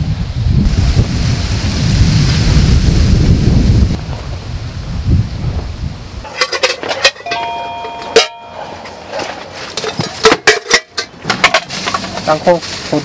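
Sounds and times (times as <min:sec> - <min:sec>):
camping kitchen gear clicking: 0:06.3 - 0:12.2
steady multi-pitch tone: 0:07.3 - 0:09.1.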